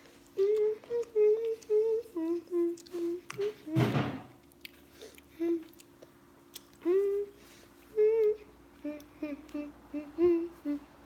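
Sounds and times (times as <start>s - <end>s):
girl humming: 0.3s - 4.0s, 5.3s - 5.8s, 6.8s - 11.0s.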